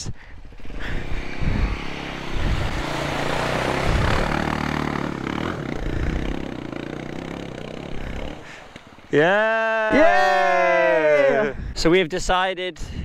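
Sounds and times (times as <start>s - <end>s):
motorcycle engine running: 0.4s - 9.0s.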